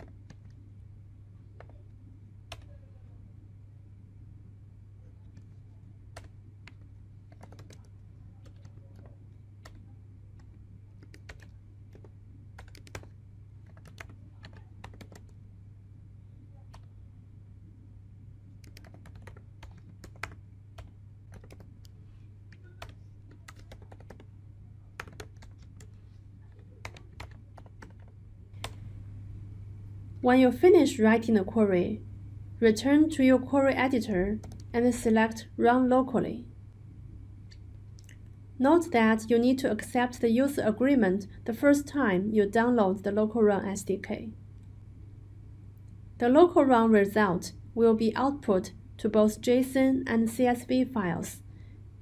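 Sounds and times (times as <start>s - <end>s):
typing on computer keyboard: 0.0s - 0.6s, 1.6s - 1.8s, 2.5s - 2.8s, 5.3s - 9.8s, 10.4s - 15.4s, 18.6s - 24.3s, 25.0s - 28.8s, 34.4s - 34.7s
steady low hum: 0.0s - 52.0s.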